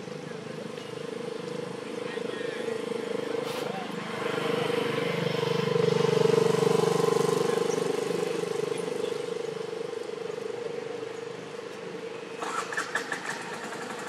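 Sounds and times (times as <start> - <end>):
vehicle engine passing by: 2.8 - 10.5.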